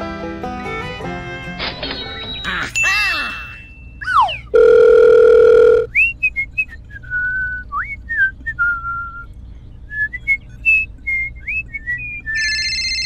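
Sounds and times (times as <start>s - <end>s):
steady electronic beep tone: 4.0s - 5.9s
person whistling a tune: 5.9s - 9.3s, 9.9s - 12.4s.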